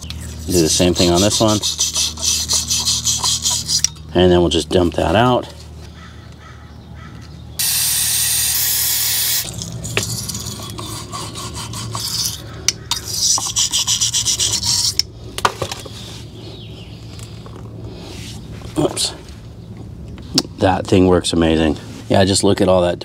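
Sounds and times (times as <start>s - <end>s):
wire brush scrubbing: 0.2s - 4.0s, 9.8s - 15.0s
aerosol spray hissing: 7.6s - 9.4s.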